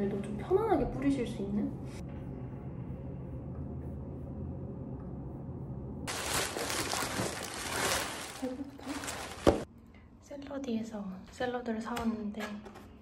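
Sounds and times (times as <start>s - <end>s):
low room hum: 0.0s - 13.0s
plastic bag rustling and crinkling: 6.1s - 9.7s.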